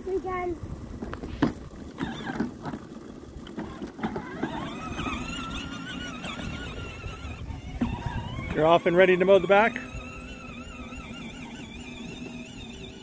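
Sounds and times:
small motor whining: 0.0 - 13.0.

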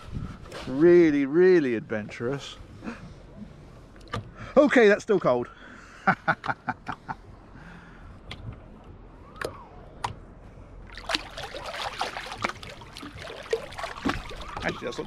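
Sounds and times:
feet splashing in water: 10.9 - 15.0
water drips and plinks: 10.9 - 15.0.

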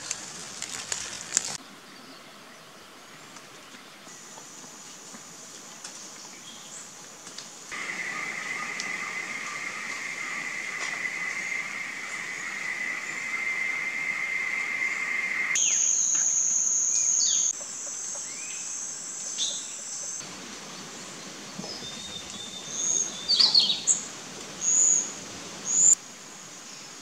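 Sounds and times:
insects droning: 0.0 - 1.6, 4.1 - 27.0
whistled bird calls: 7.7 - 17.6, 21.7 - 26.0.

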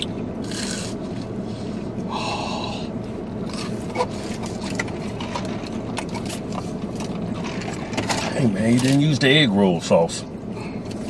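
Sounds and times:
car cabin hum: 0.0 - 11.0
person chewing crunchy food: 0.4 - 1.2.

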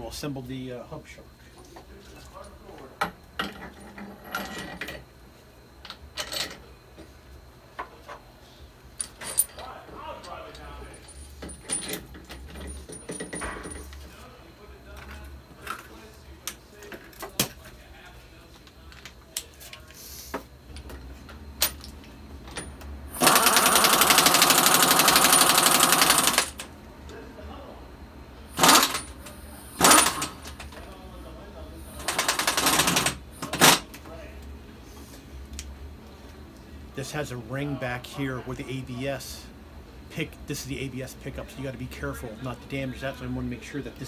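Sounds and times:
metallic clinks and knocks: 9.0 - 9.8, 10.9 - 14.0
pneumatic impact wrench hammering: 23.1 - 26.6, 28.5 - 30.6, 31.9 - 33.8.

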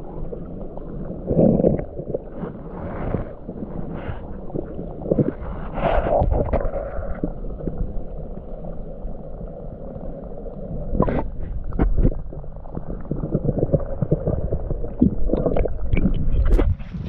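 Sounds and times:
muffled underwater river rushing: 0.0 - 17.0.

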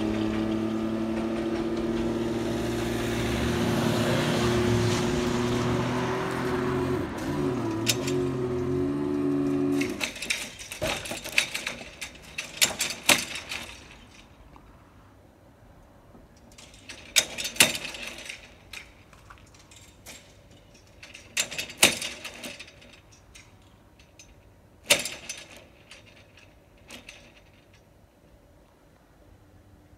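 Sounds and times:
sharp metallic clicks and clatters: 7.1 - 14.7, 16.3 - 28.4.

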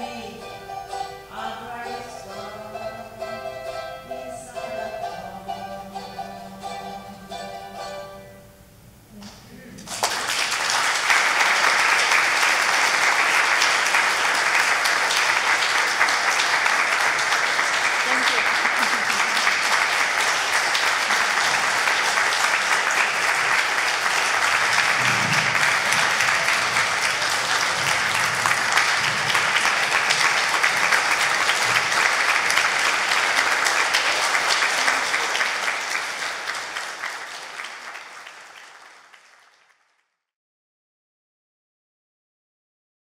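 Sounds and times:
audience applauding: 9.8 - 40.1.

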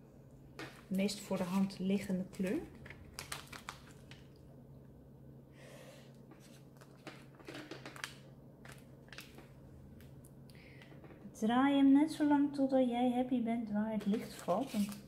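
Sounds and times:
low steady hum: 0.0 - 15.0
plastic sheet crinkling: 0.7 - 4.4, 6.4 - 10.1, 14.0 - 15.0.

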